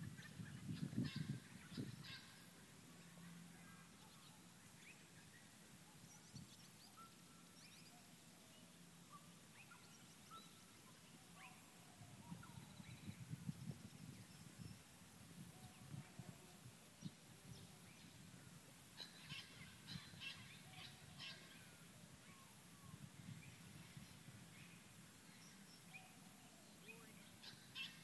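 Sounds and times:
faint bird chirps: 0.0s - 18.3s.

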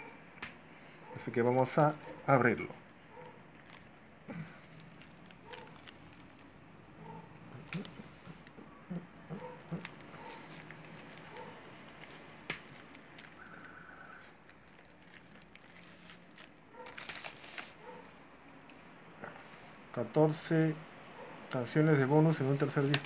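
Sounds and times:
plastic wrap crinkling: 1.2s - 18.1s, 22.4s - 23.0s.

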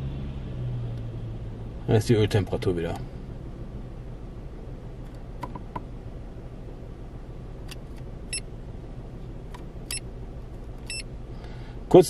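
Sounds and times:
car engine idling: 0.0s - 12.0s
short high beeps: 10.9s - 11.1s.

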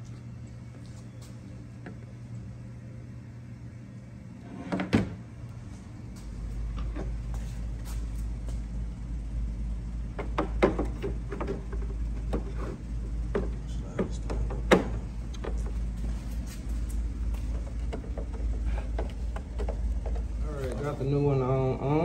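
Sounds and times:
low steady rumble: 0.0s - 22.0s.

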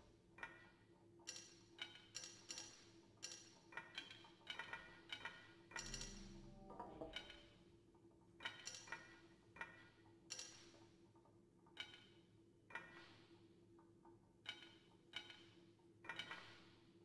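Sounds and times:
faint steady hum: 5.7s - 7.9s
electronic percussive strikes: 5.8s - 7.5s.

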